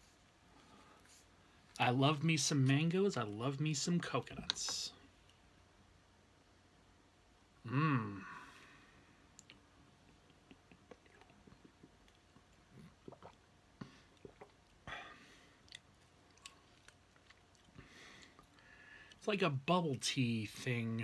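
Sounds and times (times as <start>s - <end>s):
small mouth clicks: 9.3s - 13.4s
mouth sounds drinking and chewing: 9.3s - 19.2s.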